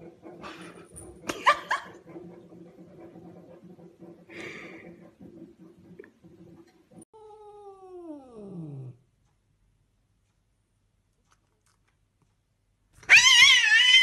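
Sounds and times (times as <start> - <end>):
cat yowling: 13.0 - 14.0.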